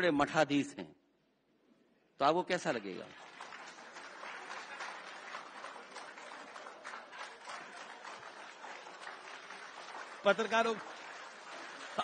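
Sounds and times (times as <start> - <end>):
crowd applauding: 2.7 - 12.0.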